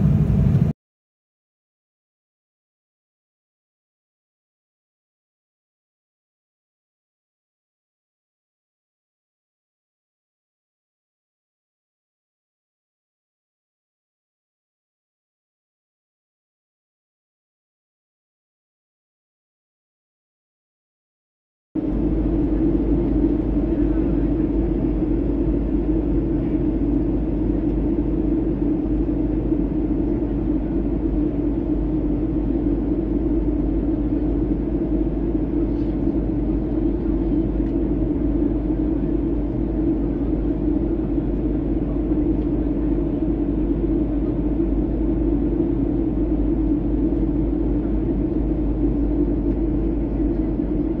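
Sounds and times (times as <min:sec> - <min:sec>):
jet airliner cabin rumble: 0:00.0 - 0:00.8, 0:21.8 - 0:51.0.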